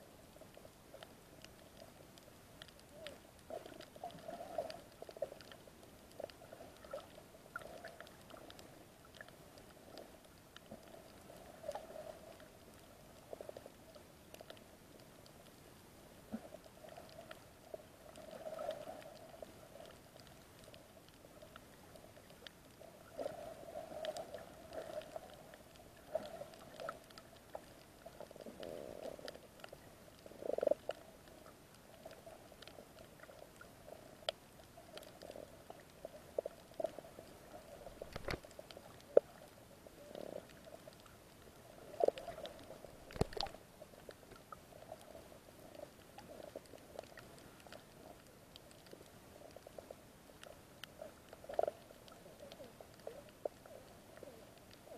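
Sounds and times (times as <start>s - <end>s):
small clicks: 37.8s - 39.5s, 42.0s - 45.1s.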